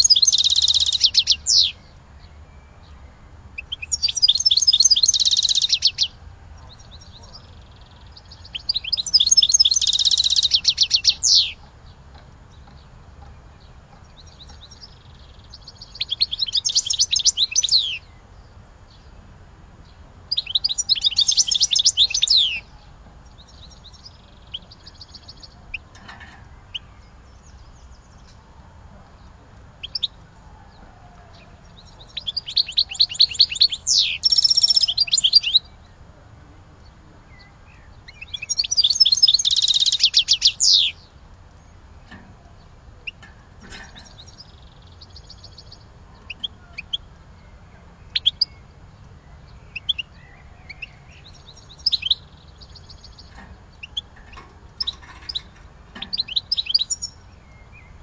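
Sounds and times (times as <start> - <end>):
songbird trilled phrases: 0.0 - 30.3, 31.4 - 58.0.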